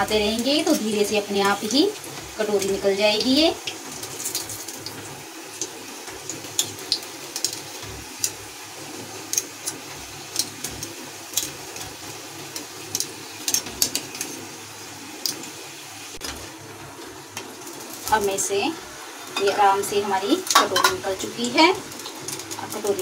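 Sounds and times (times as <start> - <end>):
hot oil sizzling: 0.0 - 23.0
sharp crackles and pops: 3.6 - 18.4.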